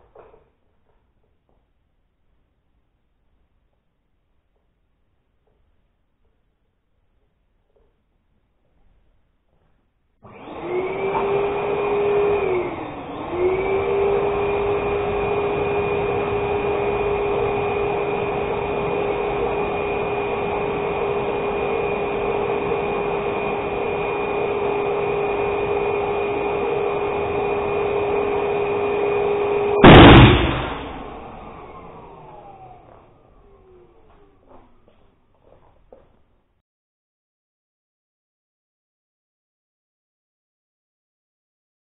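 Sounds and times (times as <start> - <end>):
balloon inflator humming: 10.2 - 34.5
balloons bursting with bang: 29.8 - 31.2.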